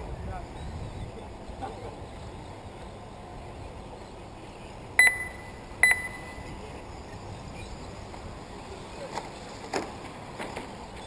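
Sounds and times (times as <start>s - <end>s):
faint steady background noise: 0.0s - 11.0s
short electronic beeps: 5.0s - 6.6s.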